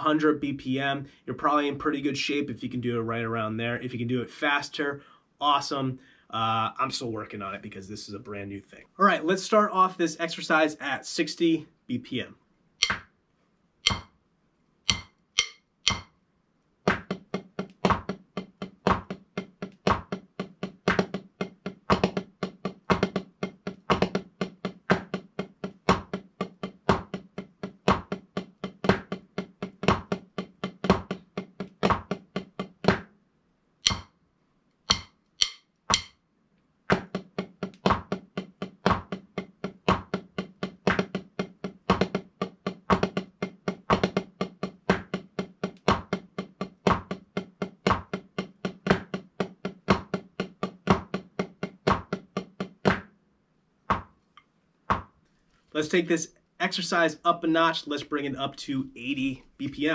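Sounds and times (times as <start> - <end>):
drumsticks on practice pad: 12.8 - 13.1, 13.8 - 14.2, 14.9 - 16.2, 33.8 - 34.2, 34.9 - 36.2
metronome clicking: 12.8 - 13.1, 13.8 - 14.1, 14.9 - 16.1, 33.8 - 34.1, 34.9 - 36.2.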